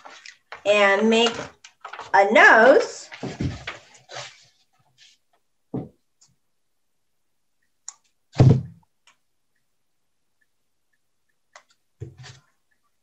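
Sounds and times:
objects thudding on a table: 8.4s - 8.8s.

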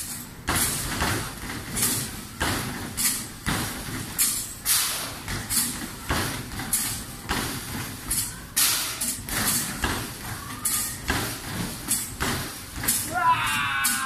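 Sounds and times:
basketballs thudding against backboard: 0.5s - 10.3s, 11.0s - 13.1s.

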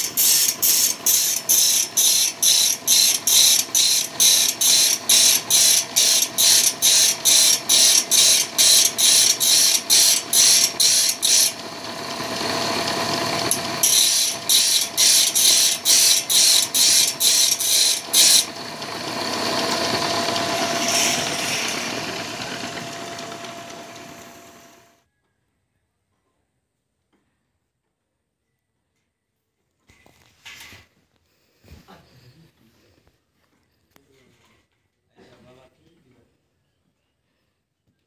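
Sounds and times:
grinding wheel rasping on blade: 0.0s - 24.9s
motor hum: 0.0s - 24.9s.

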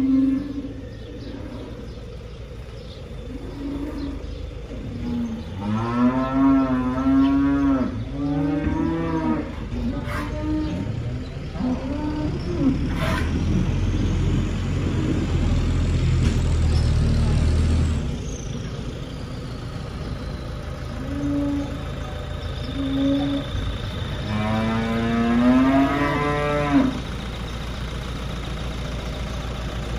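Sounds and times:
calves mooing: 0.0s - 1.9s, 3.3s - 13.6s, 20.9s - 22.0s, 22.7s - 27.0s
tractor engine running: 0.0s - 5.7s, 9.4s - 29.9s.

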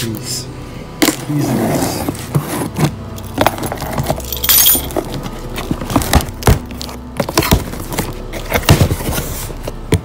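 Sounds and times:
cardboard box knocks and thumps: 5.6s - 10.0s.

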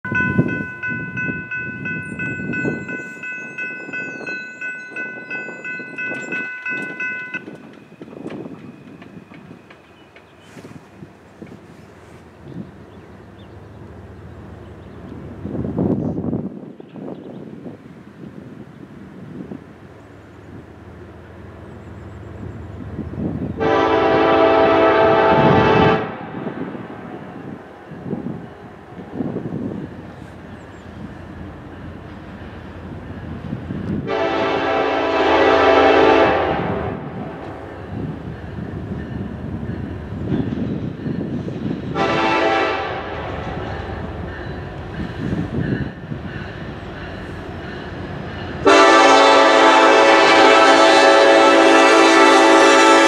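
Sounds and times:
crossing bell ringing: 0.0s - 10.0s, 37.6s - 40.2s, 43.6s - 51.0s
diesel locomotive rumble: 0.0s - 53.0s
locomotive air horn: 23.6s - 27.1s, 34.0s - 37.4s, 41.9s - 43.6s, 48.6s - 53.0s.

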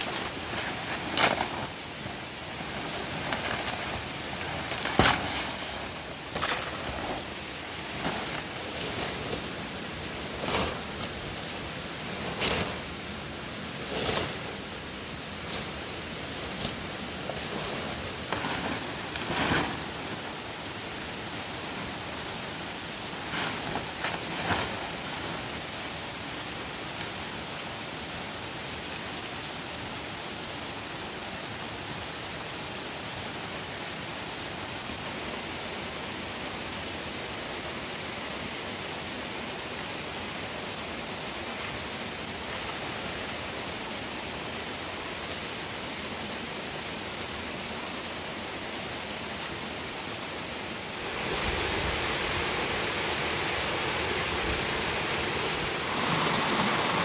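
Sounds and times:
high thin whine: 0.0s - 25.6s
steady hiss: 0.0s - 57.0s.

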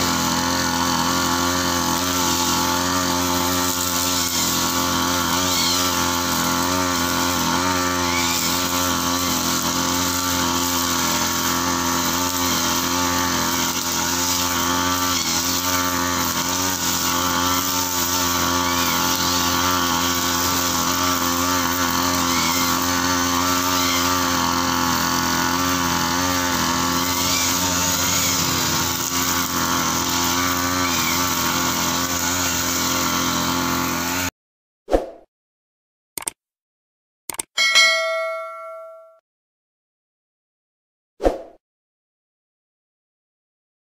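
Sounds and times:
blade cutting grass: 0.0s - 34.3s
brush cutter engine running: 0.0s - 34.3s.

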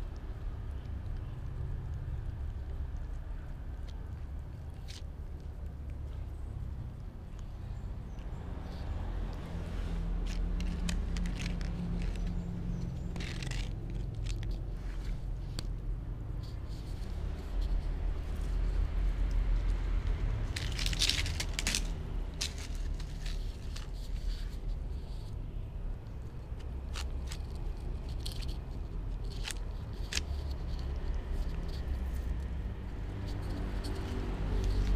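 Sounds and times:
cat chewing and licking: 0.0s - 25.4s, 26.0s - 34.9s
steady low rumble: 0.0s - 34.9s
rustle: 7.3s - 34.9s.

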